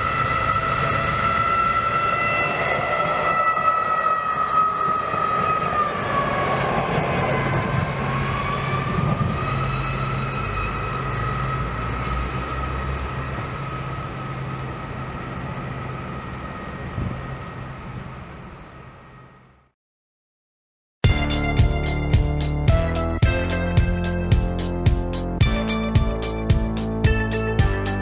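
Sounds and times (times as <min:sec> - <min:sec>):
train high whine: 0:00.0 - 0:19.6, 0:21.1 - 0:28.0
low engine rumble: 0:10.4 - 0:19.7.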